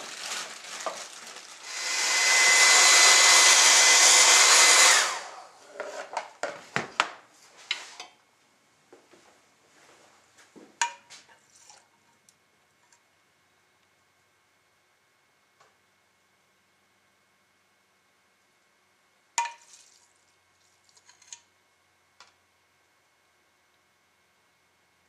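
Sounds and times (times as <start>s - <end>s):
hair dryer blowing: 1.6s - 5.6s.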